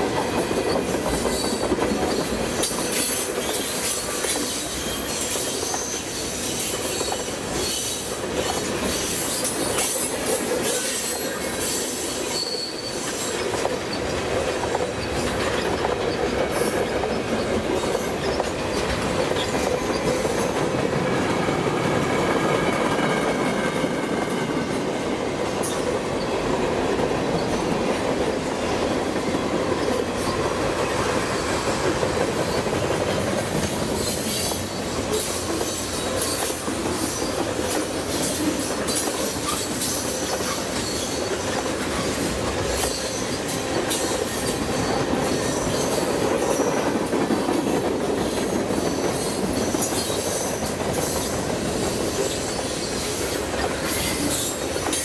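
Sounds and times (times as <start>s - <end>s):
steel wheels rumbling on rail: 0.0s - 55.0s
high-pitched clicks and squeals: 0.6s - 20.6s, 33.6s - 46.9s.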